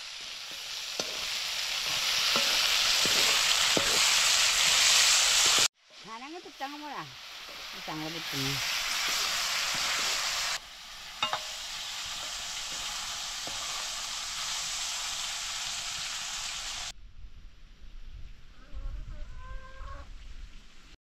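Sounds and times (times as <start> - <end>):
vegetables sizzling in hot oil: 0.0 - 16.9
metal ladle clink: 11.1 - 12.3.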